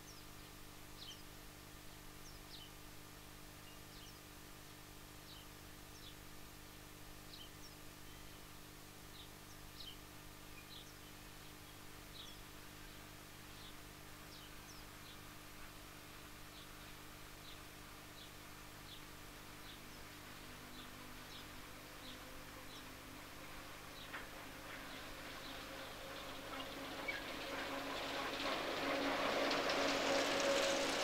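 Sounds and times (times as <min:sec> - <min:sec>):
small bird chirping: 0:09.1 - 0:12.5
faint diesel engine drone: 0:16.4 - 0:31.0.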